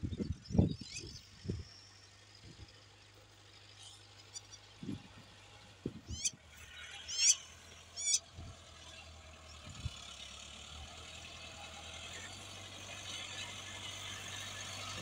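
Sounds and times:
bird chirping: 0.0 - 1.6, 6.1 - 6.4, 7.0 - 8.2
distant tractor drone: 0.0 - 15.0.

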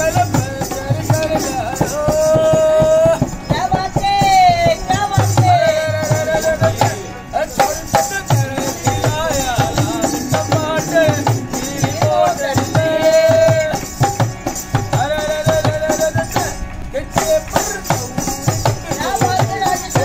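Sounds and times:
harmonium holding notes: 0.0 - 20.0
man singing: 0.0 - 20.0
hand drum strokes: 7.6 - 20.0.

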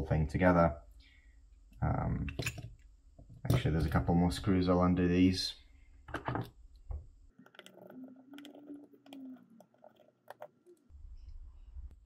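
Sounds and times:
screwdriver scraping: 7.5 - 10.6.

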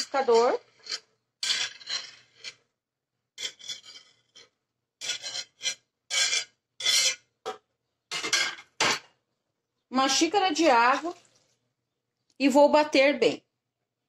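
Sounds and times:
corn kernels scraped into blender jar: 0.0 - 2.7, 3.4 - 7.3.

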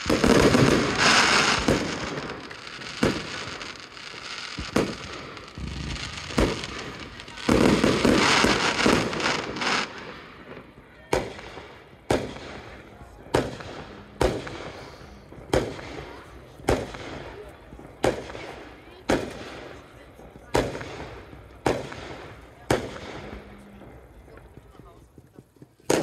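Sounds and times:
firework shells bursting: 0.0 - 10.3
fireworks crackling: 0.0 - 26.0.

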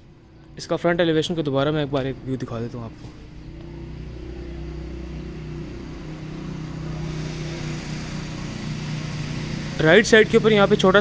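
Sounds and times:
mechanical hum: 0.0 - 11.0.

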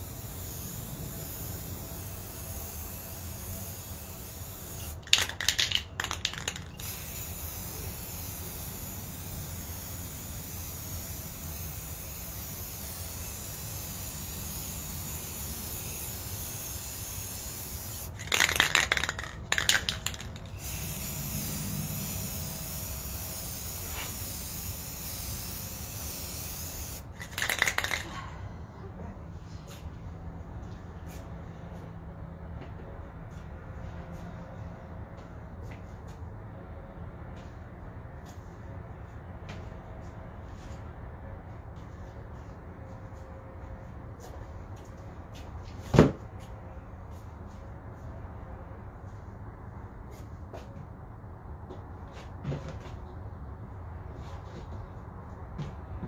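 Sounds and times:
aerosol spray can bursts: 0.0 - 28.1.

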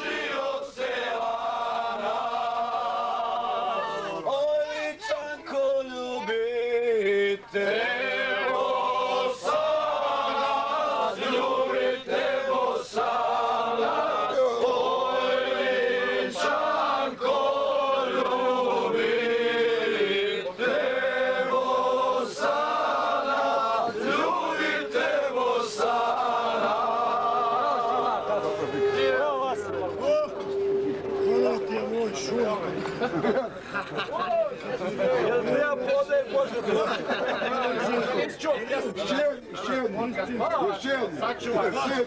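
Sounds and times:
men singing together: 0.0 - 31.6.

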